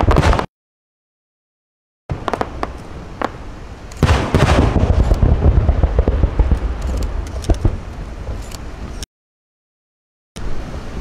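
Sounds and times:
fireworks booming and crackling: 0:00.0 - 0:00.5, 0:02.1 - 0:08.5
sharp firework cracks: 0:00.0 - 0:00.5, 0:02.1 - 0:03.4, 0:04.0 - 0:07.9.

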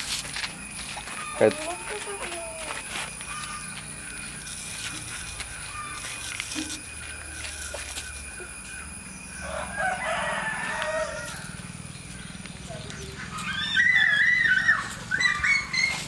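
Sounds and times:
rooster crowing: 0:09.4 - 0:11.7, 0:13.3 - 0:16.0.

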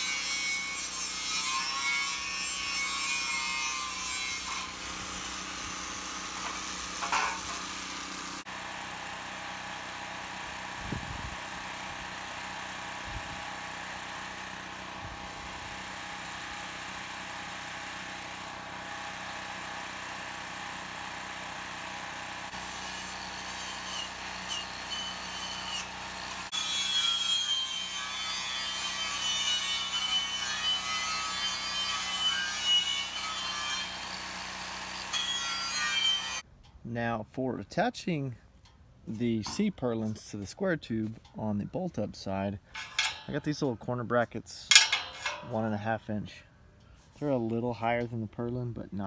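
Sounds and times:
power saw cutting steel: 0:00.0 - 0:10.8, 0:11.4 - 0:36.4, 0:42.6 - 0:43.9, 0:44.6 - 0:46.3.

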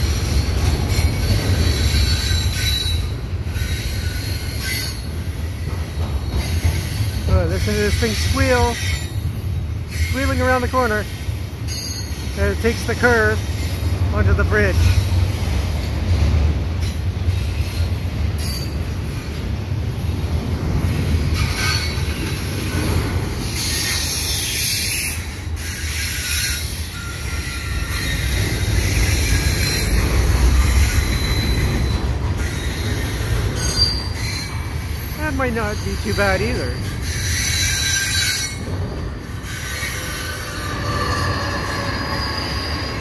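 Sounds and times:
freight train rumble: 0:00.0 - 0:43.0
wheels squealing: 0:00.2 - 0:09.3, 0:09.9 - 0:15.8, 0:16.8 - 0:19.3, 0:21.2 - 0:43.0.

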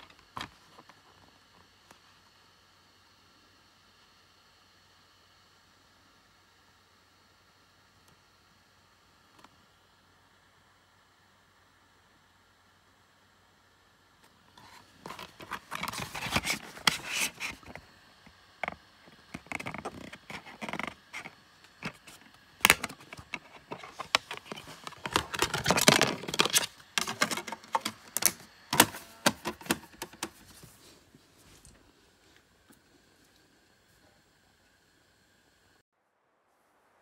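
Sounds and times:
plastic case clicks and scraping: 0:14.5 - 0:17.8, 0:18.6 - 0:30.5.

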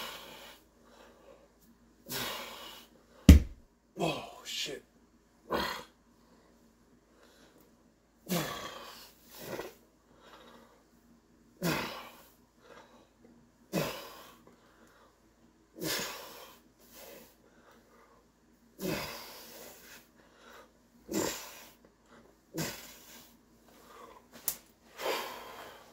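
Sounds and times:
man exhaling forcefully: 0:18.8 - 0:19.7.

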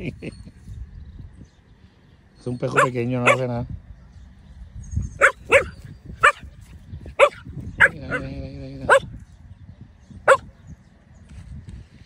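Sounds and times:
puppy yipping: 0:02.7 - 0:03.5, 0:05.2 - 0:06.4.

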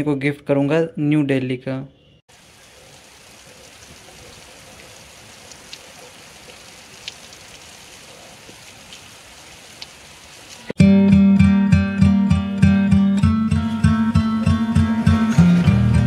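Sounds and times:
drops ticking: 0:02.3 - 0:07.7
rain falling: 0:02.3 - 0:10.8.

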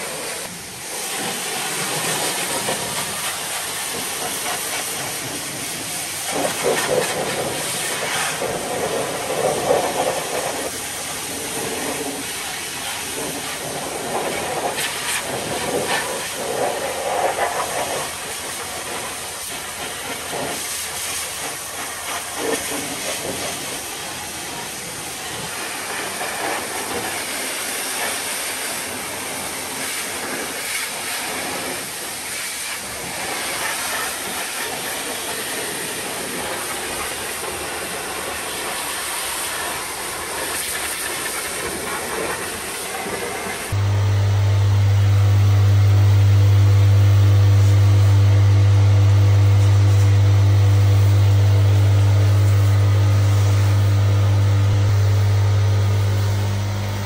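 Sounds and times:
pressure washer spraying: 0:43.7 - 0:57.0.

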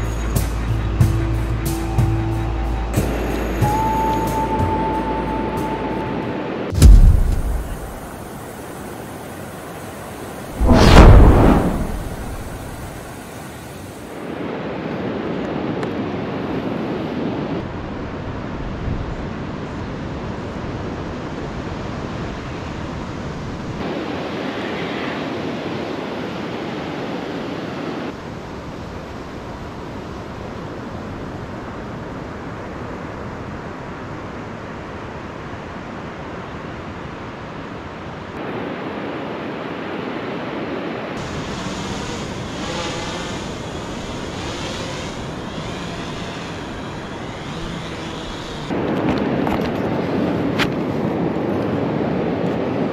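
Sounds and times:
surf breaking on beach: 0:06.7 - 0:14.2
wind on microphone: 0:10.5 - 0:14.5
drone propellers whining: 0:41.3 - 0:48.7.

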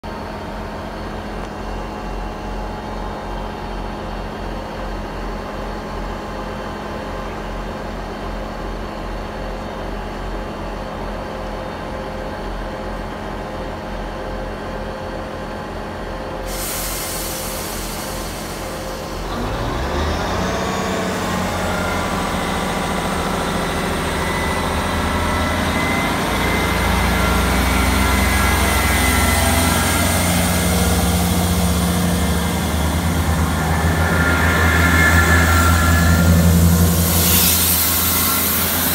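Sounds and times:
diesel train engines idling: 0:00.2 - 0:38.9
air brakes hissing: 0:16.4 - 0:19.4, 0:25.4 - 0:38.9
train engines revving: 0:17.2 - 0:38.9.

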